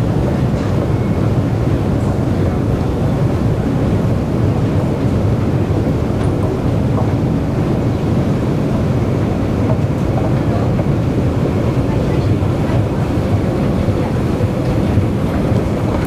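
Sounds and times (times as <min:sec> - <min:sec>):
escalator mechanical rumble: 0:00.0 - 0:16.0.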